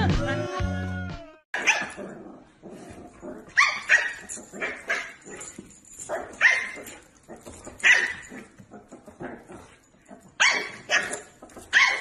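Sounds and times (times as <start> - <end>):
dog barking: 1.6 - 2.0, 3.5 - 5.3, 6.1 - 7.0, 7.8 - 8.5, 10.4 - 12.0.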